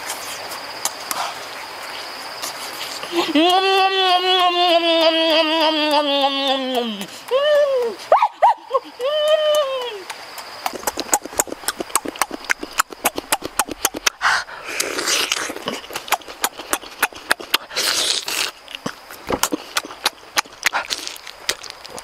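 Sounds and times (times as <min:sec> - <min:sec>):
person chewing with wet smacking: 0:09.0 - 0:22.0
sucking or slurping hisses: 0:14.1 - 0:16.0, 0:17.6 - 0:18.6.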